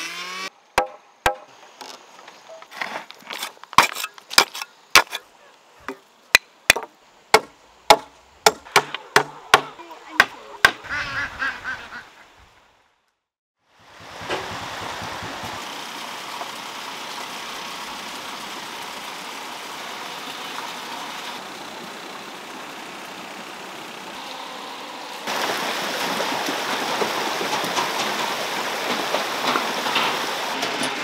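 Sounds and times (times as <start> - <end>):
running water rushing: 13.7 - 31.0.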